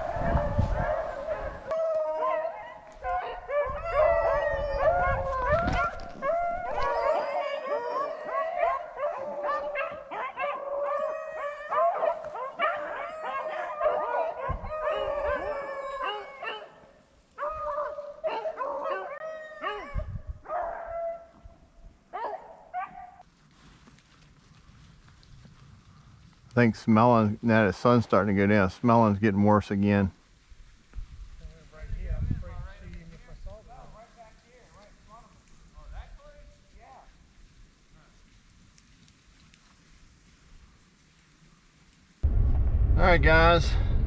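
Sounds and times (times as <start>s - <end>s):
wind rumble on microphone: 0.0s - 1.8s, 3.0s - 7.0s, 14.4s - 15.6s, 19.8s - 22.0s, 30.4s - 34.0s, 42.2s - 44.0s
hounds baying and howling: 0.0s - 21.5s, 22.1s - 23.2s.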